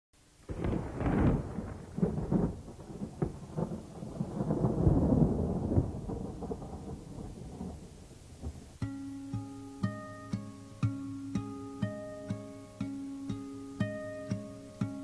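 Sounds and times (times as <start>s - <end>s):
rumbling thunder: 0.4s - 8.8s
thunder crackles: 0.4s - 8.8s.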